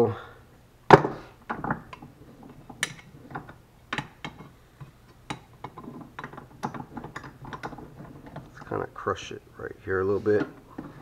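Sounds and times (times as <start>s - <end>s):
metal clicks and knocks: 5.3s - 8.8s.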